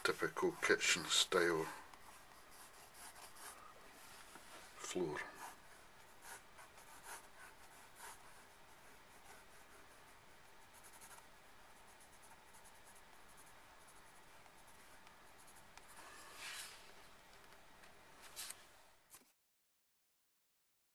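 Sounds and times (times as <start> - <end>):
pencil scratching on paper: 0.0 - 4.2, 4.8 - 16.9.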